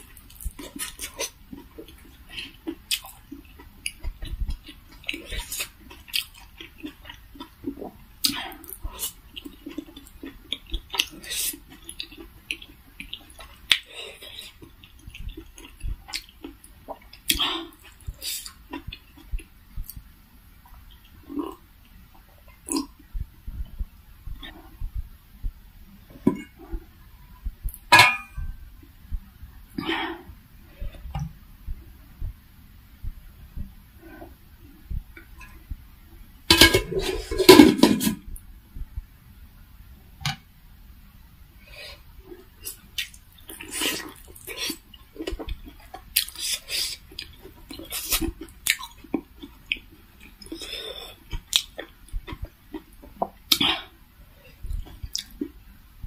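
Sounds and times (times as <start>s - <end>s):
wet chewing: 0.0s - 20.0s, 42.6s - 53.9s, 54.5s - 55.5s
rustling scrape: 36.6s - 38.2s
lip smacks: 51.3s - 53.8s, 54.6s - 55.5s.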